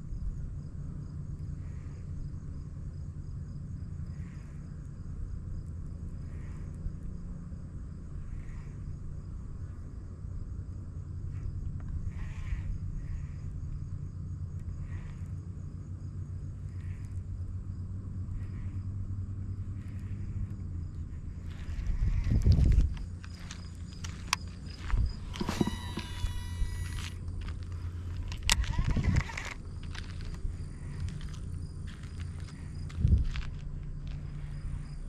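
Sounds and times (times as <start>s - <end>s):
steady low rumble: 0.0s - 35.0s
high-pitched insect trilling: 18.4s - 33.5s.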